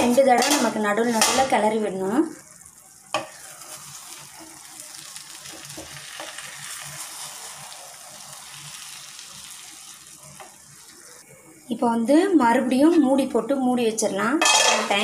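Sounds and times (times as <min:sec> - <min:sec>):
food sizzling: 0:00.0 - 0:12.1
spatula scraping a pan: 0:03.1 - 0:08.0.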